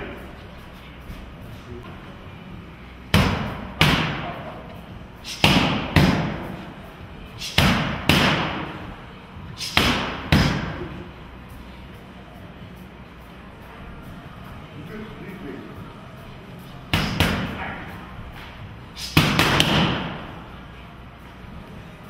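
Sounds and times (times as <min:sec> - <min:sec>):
boxing gloves smacking focus mitts: 0:05.3 - 0:06.6, 0:18.4 - 0:20.2.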